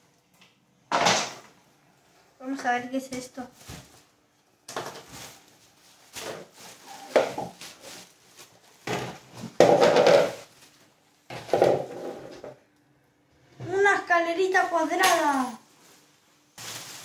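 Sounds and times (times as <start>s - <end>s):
plastic wrapping crinkling: 3.4s - 11.6s, 14.7s - 17.0s.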